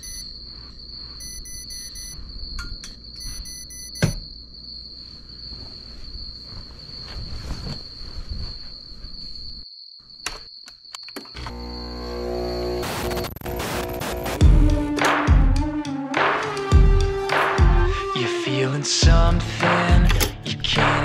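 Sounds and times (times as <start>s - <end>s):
alarm clock beeping: 0.0s - 0.3s, 1.2s - 2.2s, 3.2s - 4.2s
faint rustling: 5.1s - 9.5s.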